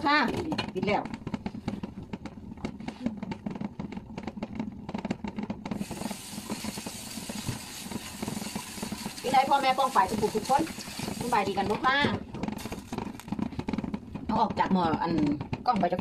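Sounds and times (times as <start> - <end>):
pot lid rattling: 0.0 - 16.0
steady steam hiss: 5.8 - 12.0.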